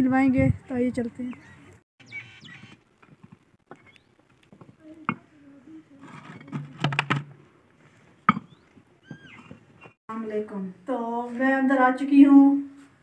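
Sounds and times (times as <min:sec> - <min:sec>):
clay bricks clunking and scraping: 0:02.8 - 0:05.3, 0:05.9 - 0:10.0.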